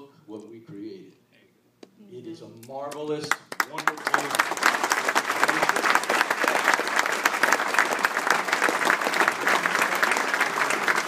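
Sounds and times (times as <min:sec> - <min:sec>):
crowd applauding: 0:03.3 - 0:11.0.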